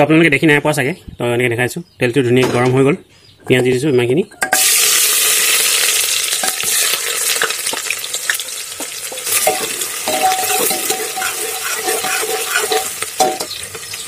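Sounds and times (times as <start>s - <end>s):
onions sizzling in oil: 4.5s - 14.0s
metal spoon scraping a pot: 8.8s - 14.0s.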